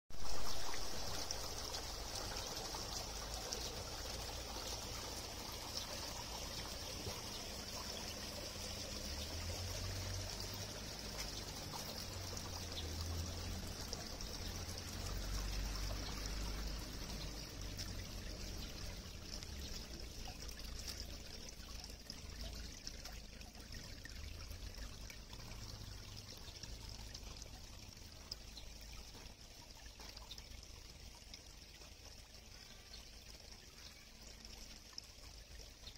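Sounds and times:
water trickling into a drain: 0.1s - 35.9s.

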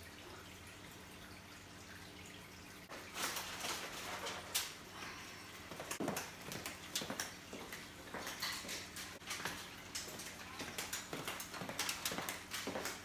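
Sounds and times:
aluminium foil crinkling: 2.9s - 4.8s
footsteps on hard floor: 5.7s - 8.8s, 9.4s - 13.0s.

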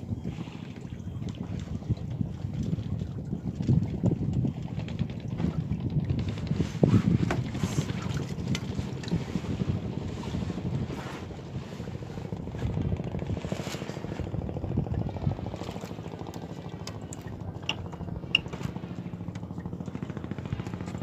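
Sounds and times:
small engine running: 14.9s - 21.0s.

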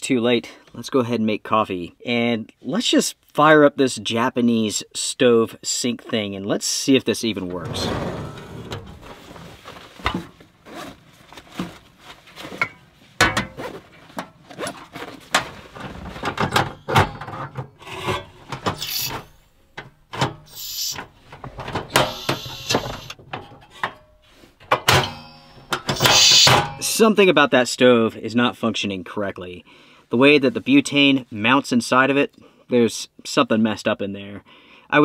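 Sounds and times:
knocks clicks and scrapes of stove: 7.5s - 10.4s, 12.6s - 26.8s.

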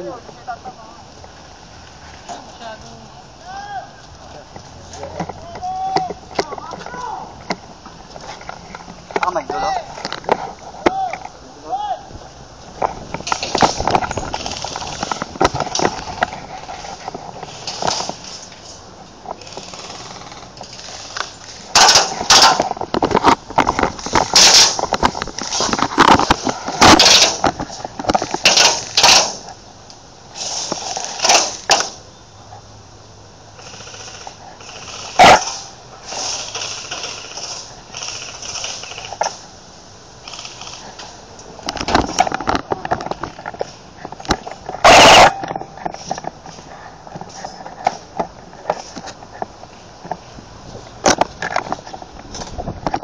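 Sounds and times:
gear clattering and knocking: 12.8s - 29.5s.

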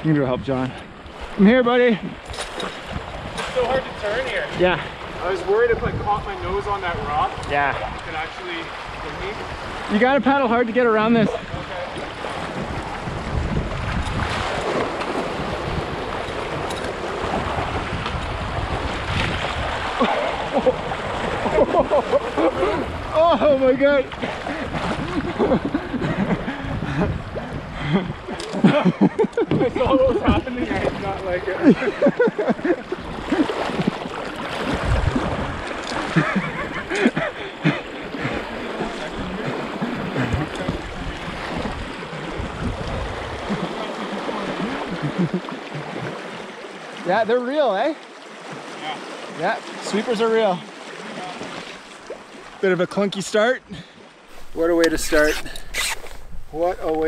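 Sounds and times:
wind rumble on microphone: 2.0s - 9.9s, 11.2s - 37.4s, 38.1s - 43.8s
water rushing over rocks: 6.4s - 25.3s, 32.7s - 47.8s.

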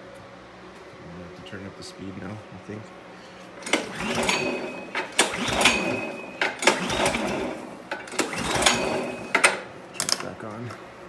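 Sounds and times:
snowblower engine running: 3.3s - 9.7s.

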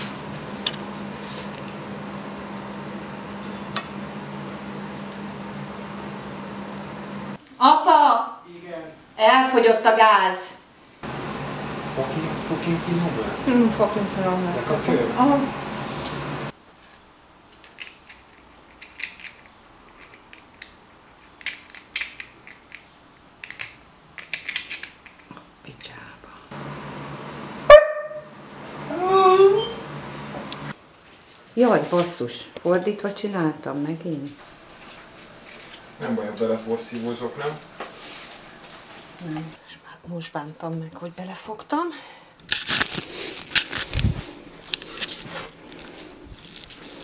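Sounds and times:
steady low hum: 10.7s - 16.6s
metallic clicks and scrapes: 16.9s - 25.4s.

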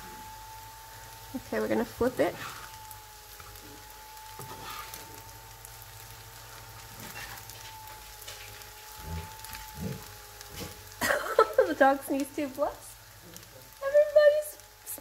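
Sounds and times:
food sizzling in a pan: 0.0s - 15.0s.

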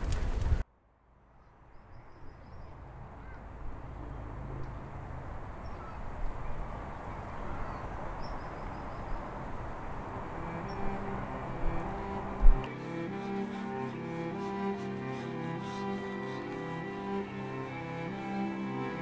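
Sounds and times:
distant traffic hum: 0.0s - 19.0s.

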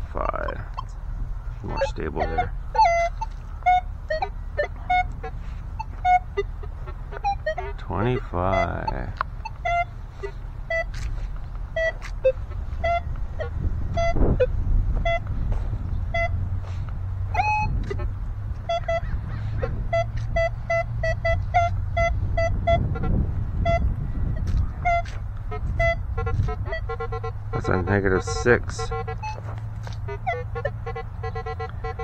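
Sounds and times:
low background rumble: 0.0s - 32.0s
metal detector beeping: 1.6s - 11.1s, 11.7s - 15.3s, 16.1s - 16.4s, 17.3s - 18.0s, 24.9s - 32.0s.

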